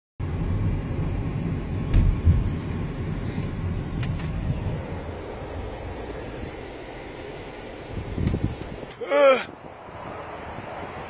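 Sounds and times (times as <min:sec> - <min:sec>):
road and engine rumble in car: 0:00.2 - 0:11.0
low thumps: 0:01.7 - 0:03.0.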